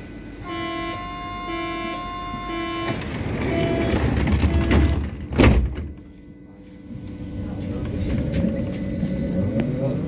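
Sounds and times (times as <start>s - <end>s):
door warning beeps: 2.3s - 6.3s
sliding door rumbling shut: 2.8s - 5.9s
door slamming: 2.9s - 5.9s.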